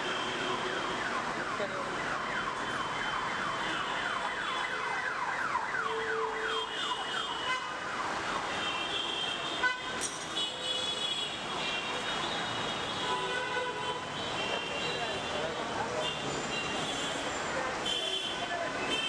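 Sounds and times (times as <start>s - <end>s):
emergency vehicle siren: 0.0s - 8.7s
street traffic noise: 0.0s - 19.0s.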